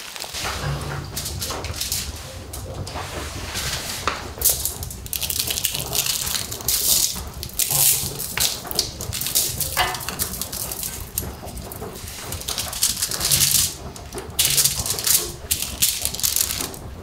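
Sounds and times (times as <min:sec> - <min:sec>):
aluminium foil crinkling: 0:00.0 - 0:03.0, 0:03.8 - 0:17.0.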